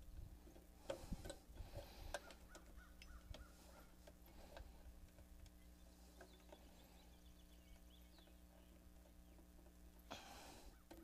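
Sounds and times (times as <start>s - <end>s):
wire terminals clicking and scraping: 0.0s - 7.0s, 10.7s - 11.0s.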